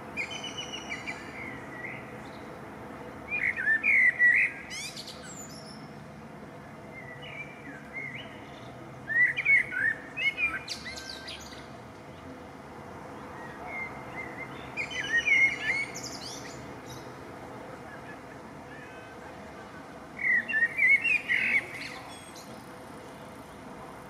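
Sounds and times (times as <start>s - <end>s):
songbird warbling: 13.7s - 17.1s.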